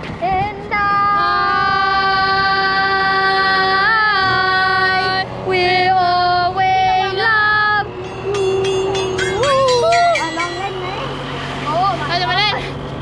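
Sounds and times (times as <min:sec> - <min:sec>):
high voice singing held notes: 0:00.7 - 0:10.9.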